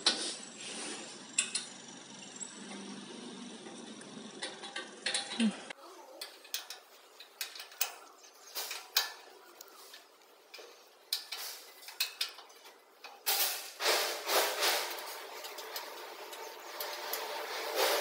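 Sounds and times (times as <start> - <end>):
sheet metal clinking and scraping: 3.6 - 5.6, 6.2 - 18.0.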